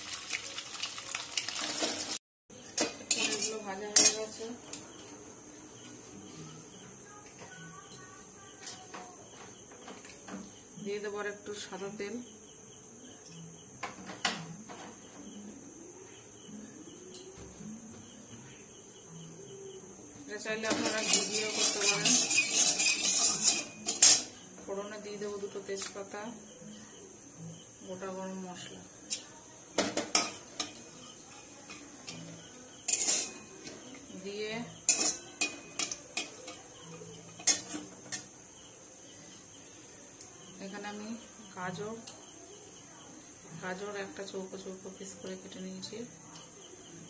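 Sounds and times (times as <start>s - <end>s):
faint regular chirping: 3.4s - 20.4s, 21.1s - 29.8s, 30.4s - 47.0s
metal spatula scraping a pan: 20.7s - 24.4s.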